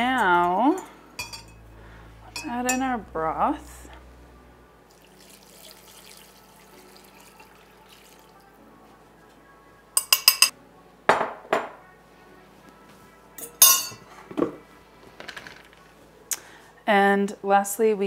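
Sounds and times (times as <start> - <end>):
glass clinks: 0.4 - 1.6, 10.0 - 10.5, 13.4 - 14.0
liquid trickling into a dish: 4.9 - 8.6
glass cup set down on counter: 11.1 - 11.8.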